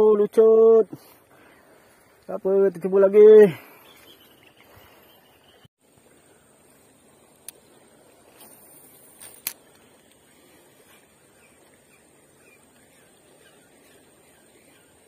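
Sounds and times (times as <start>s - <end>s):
river water flowing: 0.4s - 15.0s
faint bird chirps: 3.7s - 6.5s
fishing line hissing off reel: 7.5s - 11.3s
reel bail clicking shut: 9.2s - 10.2s.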